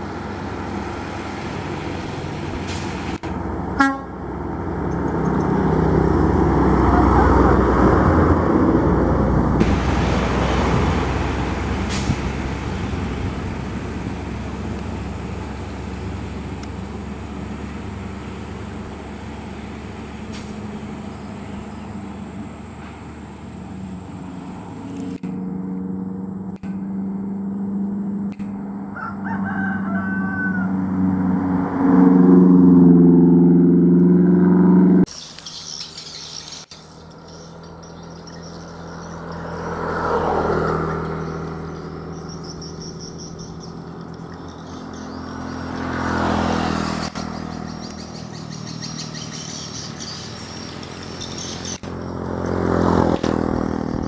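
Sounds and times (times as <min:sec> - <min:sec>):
diesel truck engine droning: 0:00.0 - 0:54.0
vehicles passing by: 0:00.0 - 0:54.0
birds chirping: 0:35.1 - 0:54.0.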